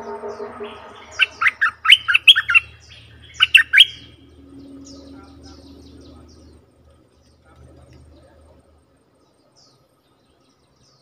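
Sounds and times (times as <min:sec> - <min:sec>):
bulbul calls: 0:00.0 - 0:06.6.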